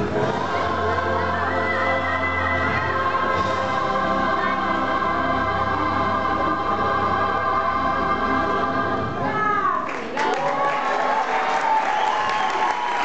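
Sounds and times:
choir singing: 0.0s - 9.4s.

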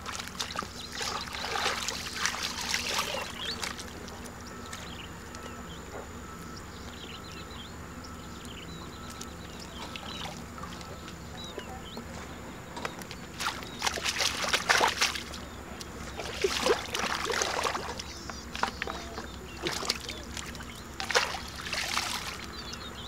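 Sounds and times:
muddy water sloshing and splashing: 0.0s - 5.0s, 9.0s - 11.8s, 12.8s - 23.0s.

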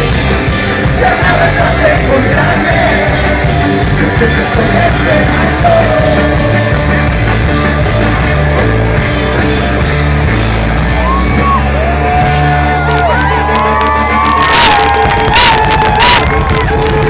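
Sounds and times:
voices singing and yelling: 0.0s - 8.8s
loud live rock band: 0.0s - 17.0s.

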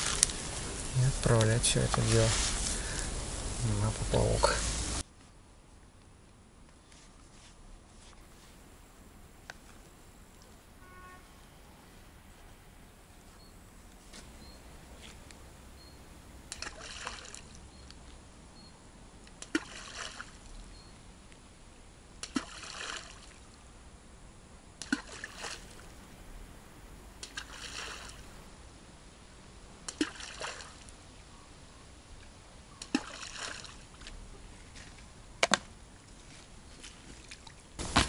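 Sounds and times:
groundbait plopping into river: 16.5s - 17.6s, 27.2s - 28.3s.

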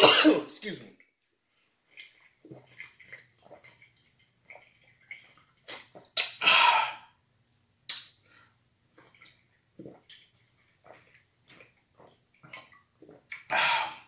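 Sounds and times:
man gulping a drink: 1.8s - 7.2s, 8.9s - 14.0s.

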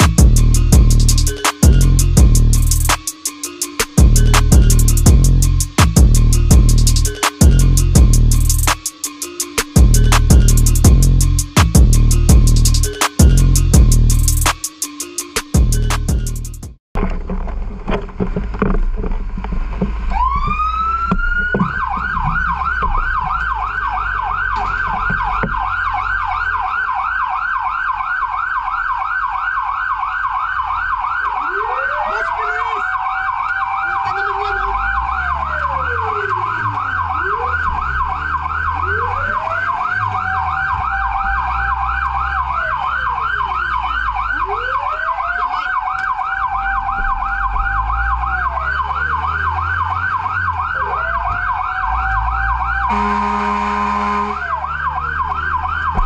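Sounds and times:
siren yelping: 0.0s - 16.3s, 20.1s - 56.0s
siren winding up and falling: 0.0s - 16.6s, 20.1s - 56.0s
horn blast: 52.7s - 54.6s.

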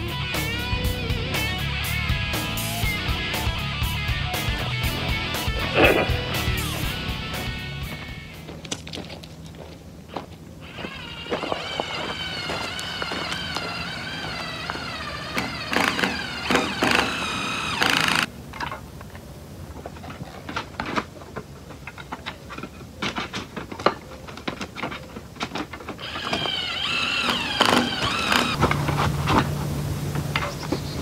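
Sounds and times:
cordless drill whining through metal: 10.6s - 18.3s, 26.0s - 28.6s.

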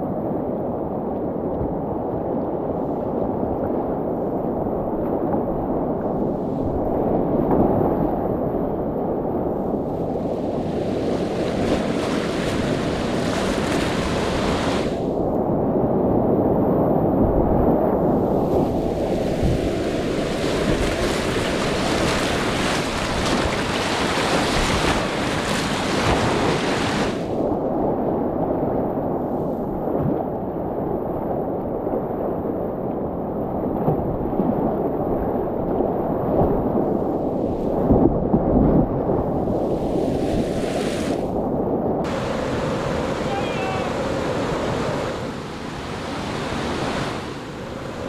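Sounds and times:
whitewater rapids rushing: 10.6s - 15.0s, 18.7s - 27.3s, 42.1s - 48.0s.

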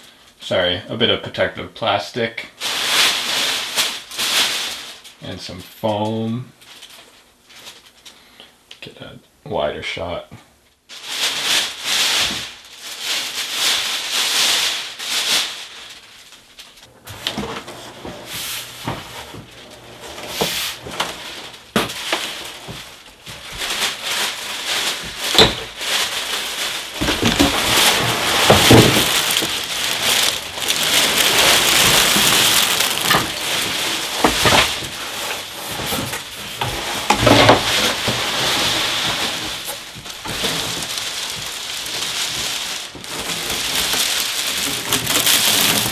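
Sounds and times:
plastic bag crinkling: 2.6s - 8.2s, 10.9s - 45.9s
cardboard box scraping: 17.1s - 22.8s, 27.0s - 45.9s.

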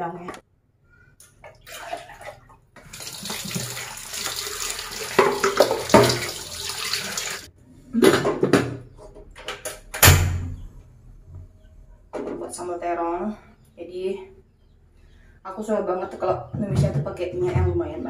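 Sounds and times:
tap running into sink: 3.0s - 7.4s.

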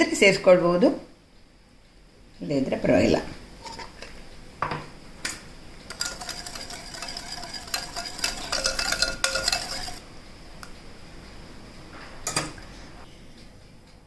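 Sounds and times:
whisk clicking against glass bowl: 5.9s - 10.0s.

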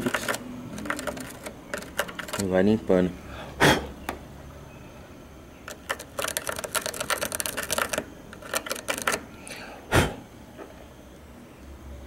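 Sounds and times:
rapid metal clicks: 0.0s - 2.6s, 5.7s - 9.3s.

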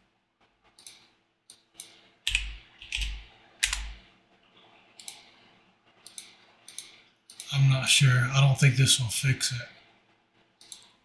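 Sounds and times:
keyboard keystrokes: 2.3s - 4.0s.

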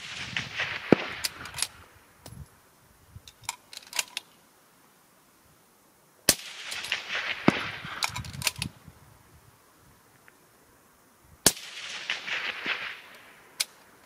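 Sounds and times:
rifle shot with echo: 0.0s - 1.8s, 6.3s - 8.2s, 11.4s - 13.8s
faint clicks: 10.1s - 10.4s.

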